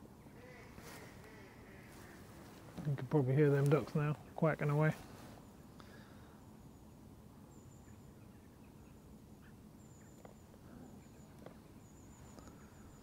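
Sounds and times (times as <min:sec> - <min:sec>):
ducks quacking faintly: 0:00.2 - 0:05.2.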